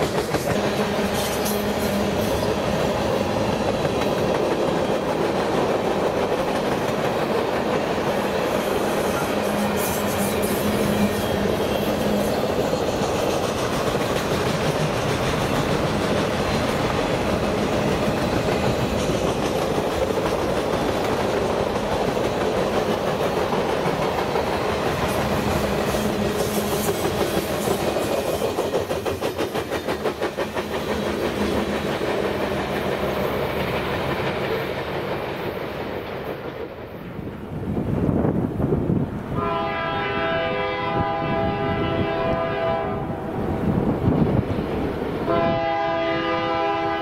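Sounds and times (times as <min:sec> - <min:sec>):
freight train cars rumbling: 0:00.0 - 0:47.0
wheels clacking over rail joints: 0:09.2 - 0:36.8.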